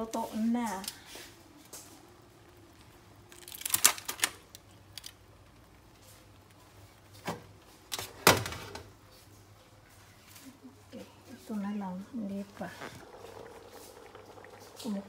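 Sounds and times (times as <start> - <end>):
aluminium foil crinkling: 2.8 - 7.2.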